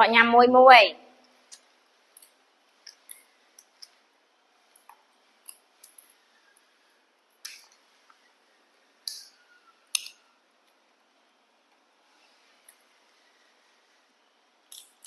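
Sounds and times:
seeds clicking on plastic tray: 0:09.1 - 0:09.3
seed shells cracking: 0:14.7 - 0:15.0.

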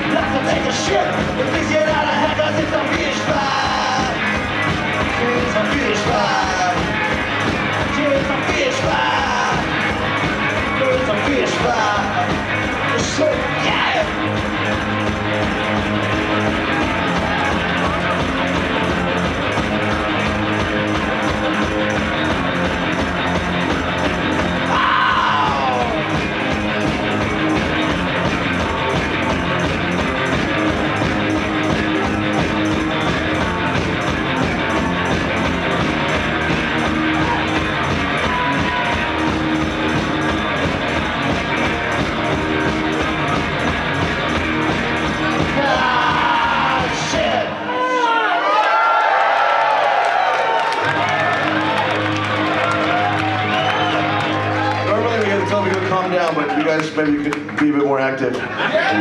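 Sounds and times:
person singing: 0:00.0 - 0:04.4, 0:05.2 - 0:07.0, 0:07.8 - 0:09.8, 0:10.8 - 0:12.4, 0:45.4 - 0:47.8
electric guitar: 0:00.0 - 0:47.8
live rock band playing: 0:00.0 - 0:47.8, 0:50.6 - 0:57.3.

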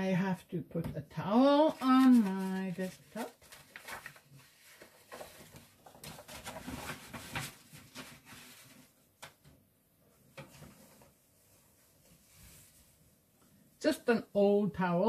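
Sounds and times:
paper and plastic rustling: 0:01.4 - 0:09.1.

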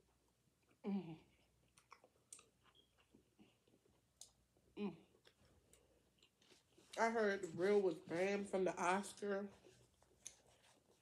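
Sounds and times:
person chewing: 0:00.0 - 0:07.0, 0:09.7 - 0:11.0.

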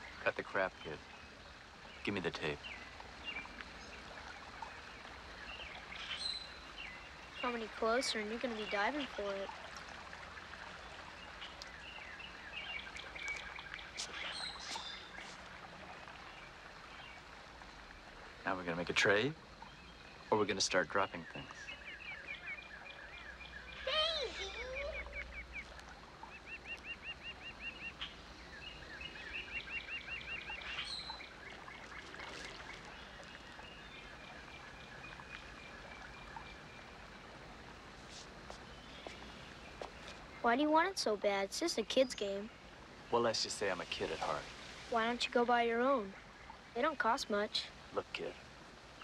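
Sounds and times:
bird chirping: 0:00.0 - 0:09.5, 0:11.1 - 0:15.4, 0:18.4 - 0:37.2
faint high bird calls: 0:00.0 - 0:09.6, 0:11.0 - 0:17.2, 0:19.6 - 0:37.1
steady background hiss: 0:00.0 - 0:49.0
short bird chirps: 0:12.6 - 0:15.4.

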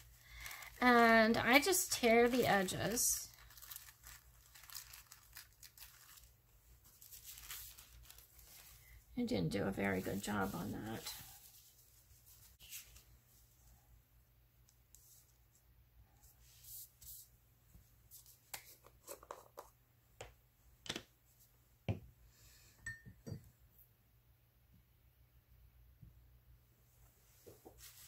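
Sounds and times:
paper rustling and tearing: 0:00.4 - 0:08.9.

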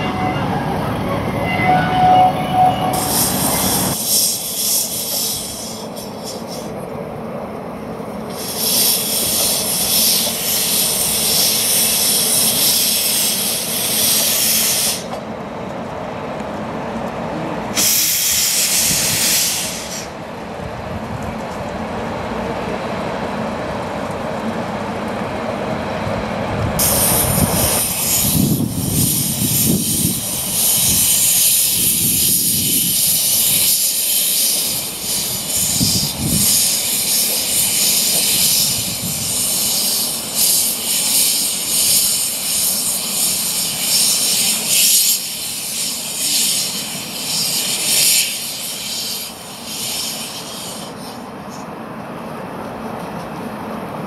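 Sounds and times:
steam hissing from cylinders: 0:02.5 - 0:06.9, 0:08.2 - 0:15.2, 0:17.7 - 0:20.2, 0:26.8 - 0:51.7.

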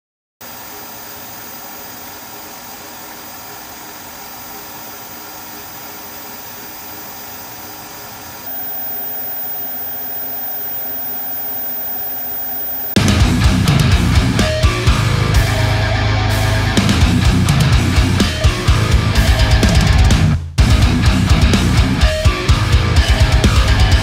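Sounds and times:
faint hum of steady tones: 0:00.4 - 0:13.0.

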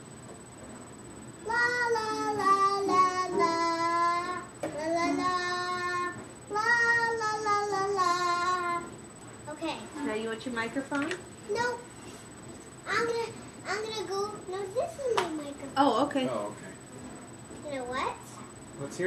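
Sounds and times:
young girl singing: 0:01.4 - 0:09.0.

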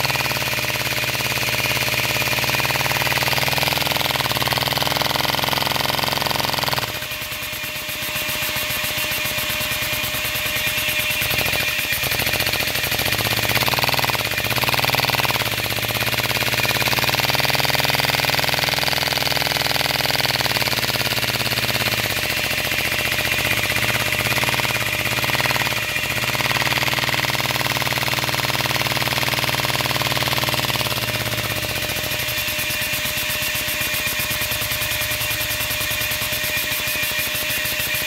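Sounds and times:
small engine chugging: 0:00.0 - 0:38.0.

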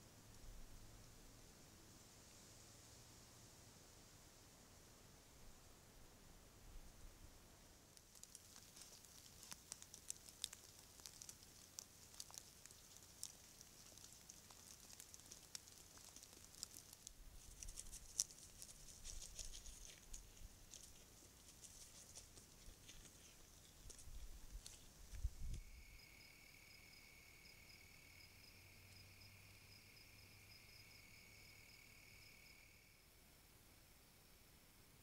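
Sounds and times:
dry leaves and twigs crackling: 0:07.8 - 0:25.9.

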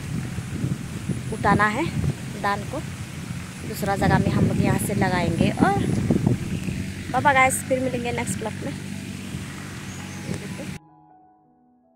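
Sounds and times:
soft piano music: 0:08.8 - 0:11.9.

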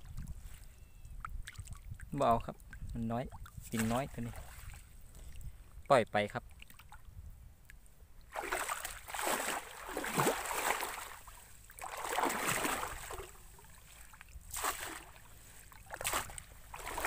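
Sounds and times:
muddy water sloshing: 0:00.0 - 0:05.6, 0:08.2 - 0:17.0
water splashing: 0:01.4 - 0:04.9, 0:08.3 - 0:17.0.

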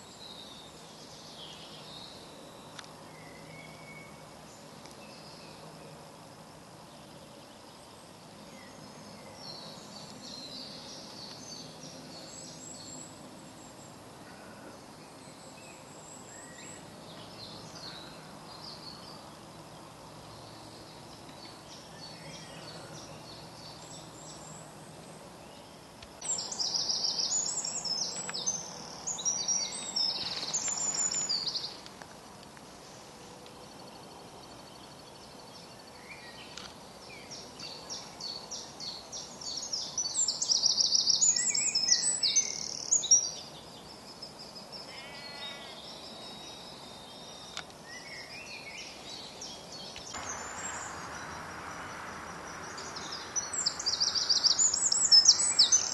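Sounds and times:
faint calls of other birds: 0:00.0 - 0:31.9, 0:32.6 - 0:55.9
songbird singing rapid high notes: 0:50.1 - 0:55.9.

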